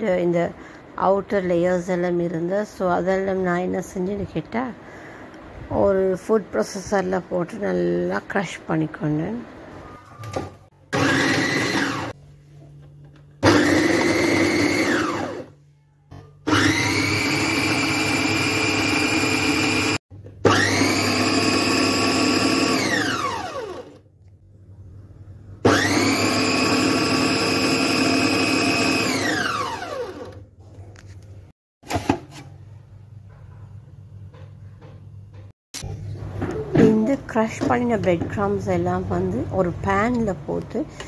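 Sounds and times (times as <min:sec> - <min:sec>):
food processor motor whining: 0:10.9 - 0:12.2, 0:13.4 - 0:15.6, 0:16.4 - 0:24.0, 0:25.6 - 0:30.4.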